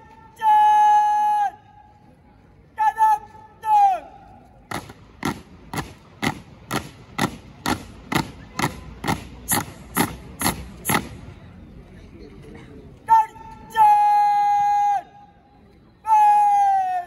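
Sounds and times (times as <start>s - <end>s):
marching boots striking ground: 4.7s - 11.2s.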